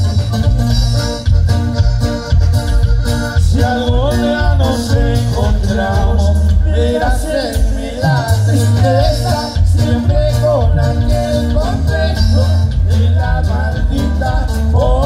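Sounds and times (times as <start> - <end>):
live band with accordion melody: 0.0 - 15.0
pulsing bass beat: 0.0 - 15.0.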